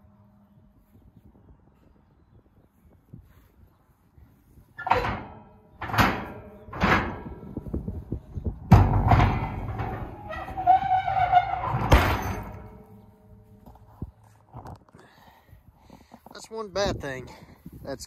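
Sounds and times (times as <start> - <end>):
metal clang with ringing rattle: 4.8 - 8.0, 8.7 - 13.0
metal ramp clanks: 4.8 - 13.8.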